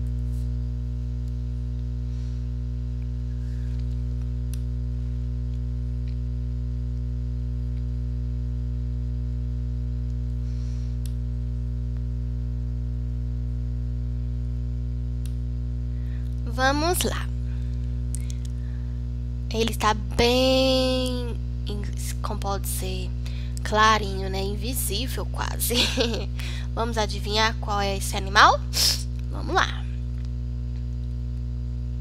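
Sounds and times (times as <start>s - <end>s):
electrical mains hum: 0.0s - 32.0s.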